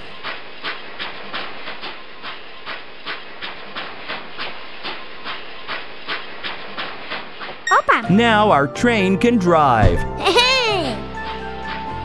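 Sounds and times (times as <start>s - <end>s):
rhythmic steam locomotive chuffs: 0.0s - 7.6s.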